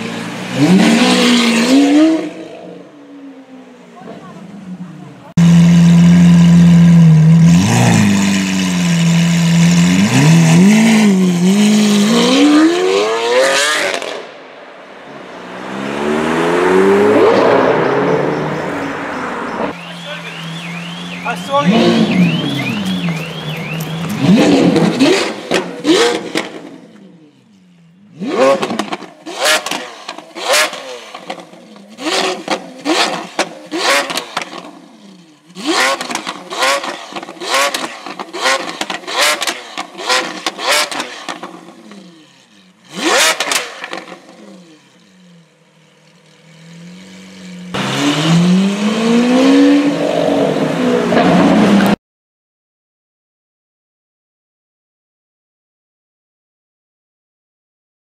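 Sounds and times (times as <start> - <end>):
sports car engine revving: 0.0 - 3.4, 4.0 - 14.4, 19.7 - 27.4, 28.0 - 52.0
exhaust pops and crackles: 36.0 - 41.8.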